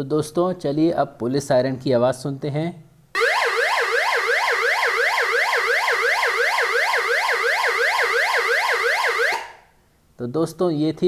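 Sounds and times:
electronic police siren tone: 3.2 - 9.6.

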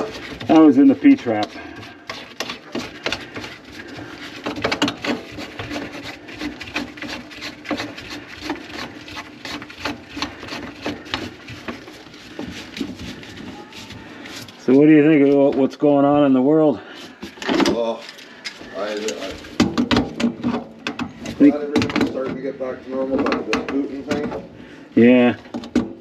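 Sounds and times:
tools clicking and knocking on drain: 0.0 - 14.6, 17.0 - 24.5, 25.4 - 26.0.

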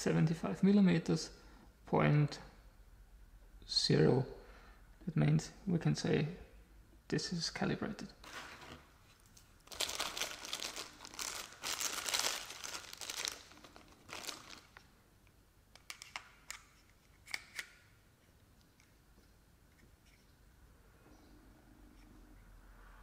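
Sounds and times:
plastic bag crinkling: 8.2 - 14.9.

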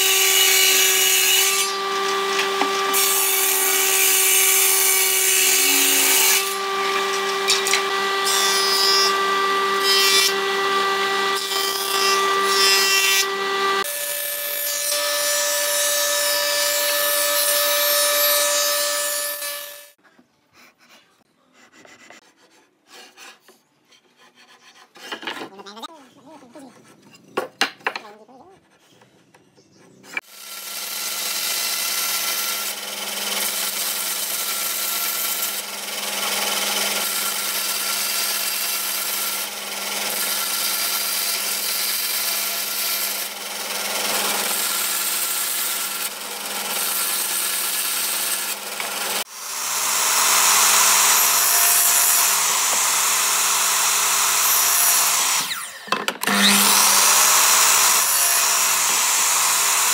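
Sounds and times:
bandsaw cutting wood: 0.0 - 20.0, 30.2 - 59.9
miter saw running: 43.1 - 55.6, 56.2 - 59.9.

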